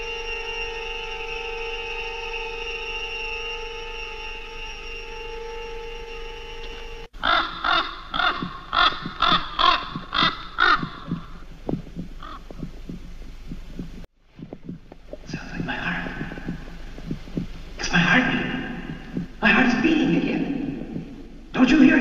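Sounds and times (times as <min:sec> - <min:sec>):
droning musical tone: 0:00.0 - 0:07.2
loud bird calls: 0:00.0 - 0:13.0.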